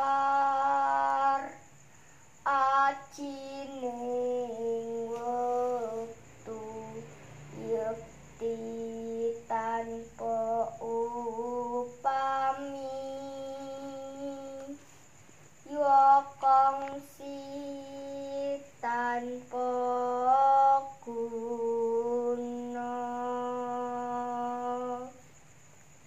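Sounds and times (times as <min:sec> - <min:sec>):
girl singing solo: 0:00.0 - 0:01.8.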